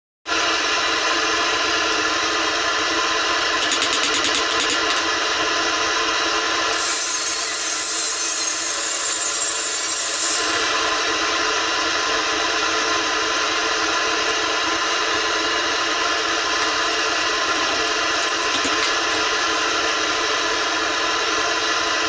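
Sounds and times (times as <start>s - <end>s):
quick clicks: 3.6s - 5.1s
sharp high hiss: 6.8s - 11.4s.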